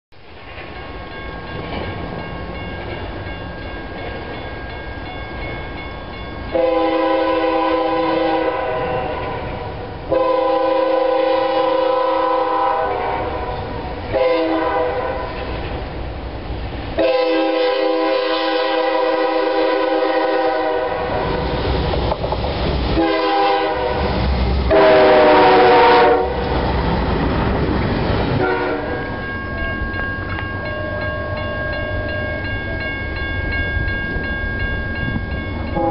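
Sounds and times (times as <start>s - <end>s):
train cars rumbling and clattering: 0.2s - 35.9s
locomotive air horn: 6.5s - 15.6s, 17.0s - 21.4s, 22.9s - 26.5s, 28.4s - 29.1s.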